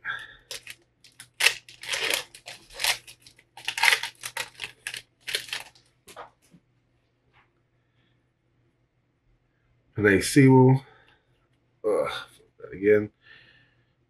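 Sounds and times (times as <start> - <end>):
foil wrapper tearing: 0.4 - 5.8
cards pulled out: 0.5 - 6.3.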